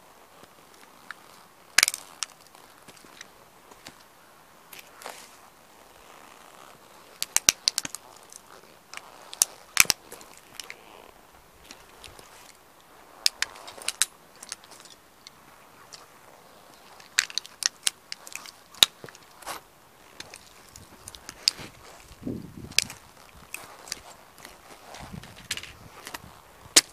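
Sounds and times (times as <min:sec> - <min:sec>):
boots crunching broken plastic: 0:16.9 - 0:26.9.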